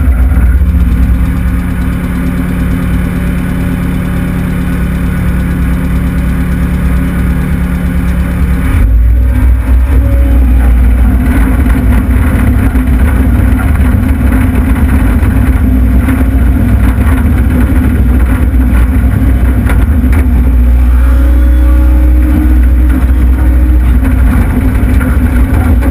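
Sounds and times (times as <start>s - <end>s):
diesel engine revving: 0.0s - 25.9s.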